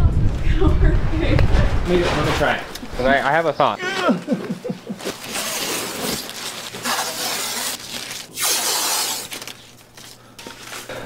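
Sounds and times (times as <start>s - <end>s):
tape ripping off roll: 5.0s - 10.1s.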